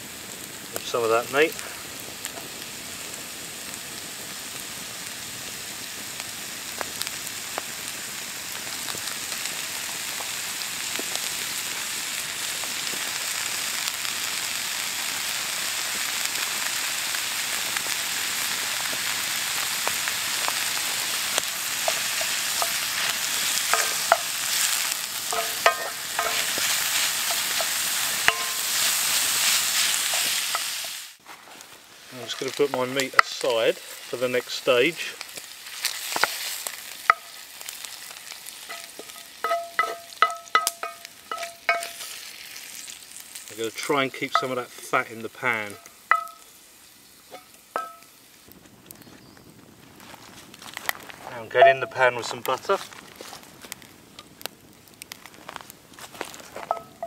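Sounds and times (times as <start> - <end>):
meat sizzling in a skillet: 0.0 - 57.0
wooden spoon scraping a pan: 21.2 - 43.0.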